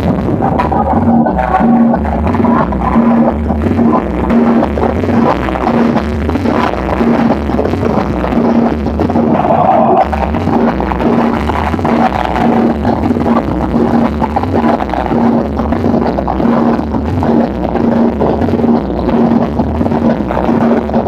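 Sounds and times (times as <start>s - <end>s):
cumbia music over loud speakers: 0.0s - 21.0s
repeating bass line: 0.0s - 21.0s
steady pulsing beat: 0.0s - 21.0s.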